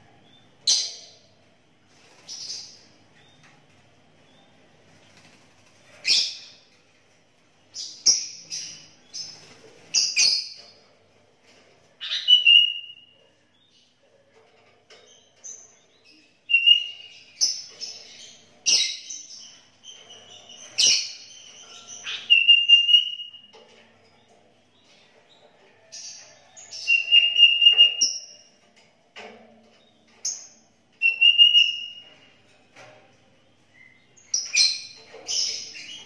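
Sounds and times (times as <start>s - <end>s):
bird chattering whistled song: 12.0s - 13.2s, 16.5s - 17.1s, 20.8s - 23.5s, 26.8s - 28.3s, 31.0s - 32.0s.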